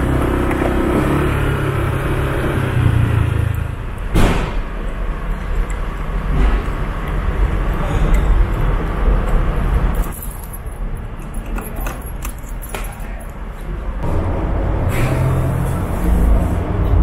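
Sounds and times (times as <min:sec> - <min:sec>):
low engine rumble: 0:00.0 - 0:17.0
steady low hum: 0:00.0 - 0:17.0.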